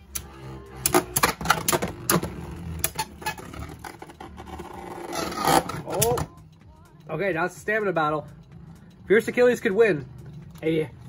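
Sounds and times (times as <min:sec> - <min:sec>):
spinning whir: 0:00.0 - 0:06.4.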